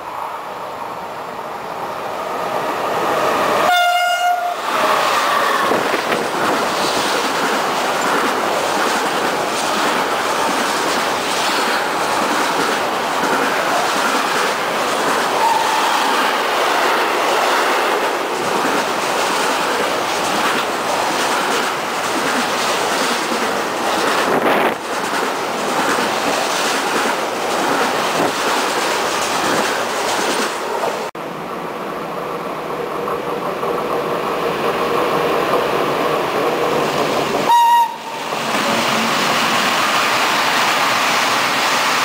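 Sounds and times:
train horn blast: 0:03.6 - 0:05.7, 0:15.4 - 0:16.2, 0:37.5 - 0:38.2
train wagons clickety-clack: 0:04.7 - 0:31.1.

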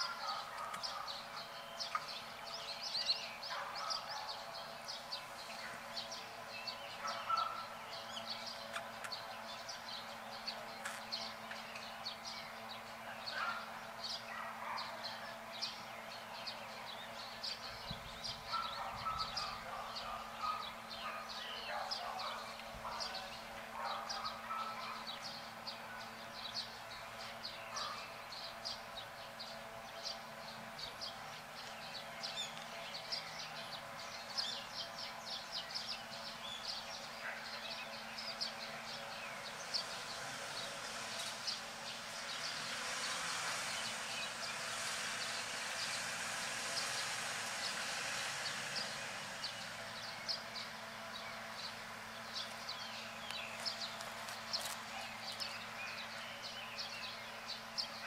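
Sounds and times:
steady low hum: 0:00.0 - 0:58.0
hiss: 0:39.4 - 0:50.7.

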